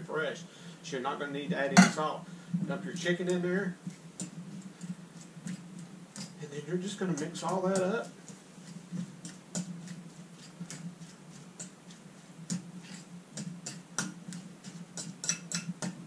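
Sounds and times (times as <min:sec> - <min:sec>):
steady low hum: 0:00.0 - 0:16.0
fork scraping against bowl: 0:03.8 - 0:16.0.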